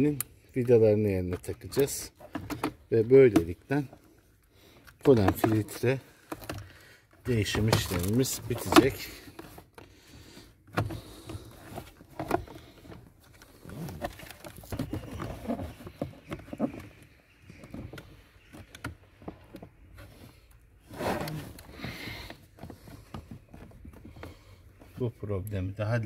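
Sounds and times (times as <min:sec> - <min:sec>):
clicks and taps of plastic parts: 0:00.2 - 0:04.1, 0:04.8 - 0:09.9.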